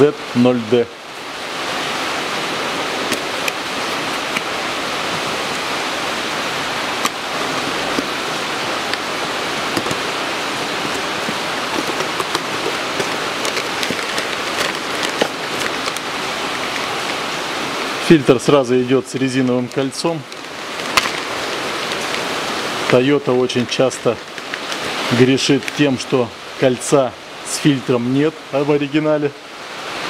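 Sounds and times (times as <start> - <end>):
steady loud hiss: 0.0 - 30.0
cardboard and plastic bag rustling: 3.0 - 26.9.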